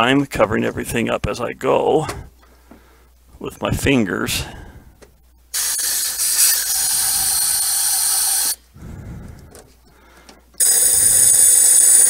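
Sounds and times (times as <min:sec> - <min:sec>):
compressed air hissing: 0:05.5 - 0:08.6.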